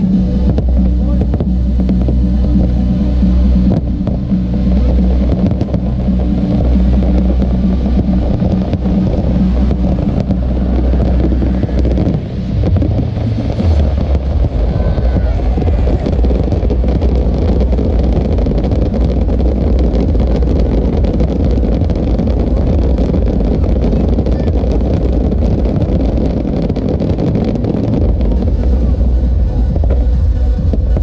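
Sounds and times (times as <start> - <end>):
fireworks barrage: 0.0 - 31.0.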